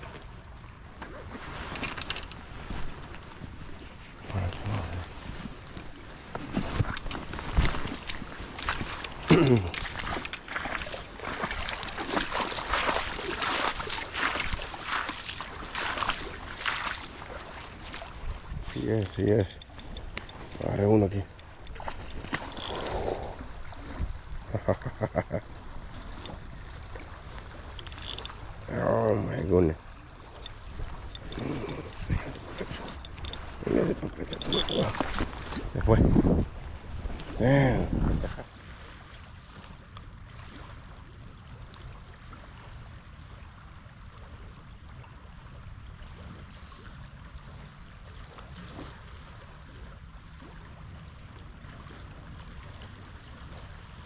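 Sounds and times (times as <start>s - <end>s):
river current rushing: 1.2s - 24.0s, 25.6s - 36.0s
fish splashing in water: 6.8s - 18.2s
wind rumble on microphone: 11.1s - 29.5s, 30.4s - 54.0s
sharp ticks: 19.4s - 20.6s, 21.3s - 22.8s, 30.4s - 33.4s.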